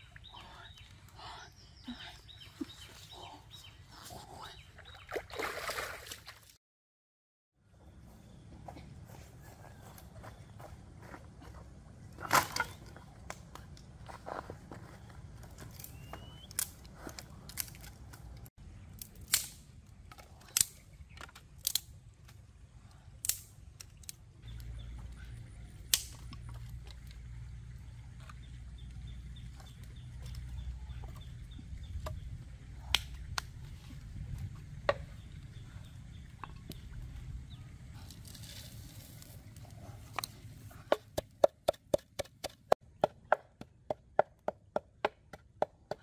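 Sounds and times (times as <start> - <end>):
sticks and stones snapping and knocking: 12.2 - 13.9, 15.5 - 22.5, 23.2 - 24.7, 25.8 - 27.2, 38.0 - 42.8
campfire crackling: 15.8 - 24.8.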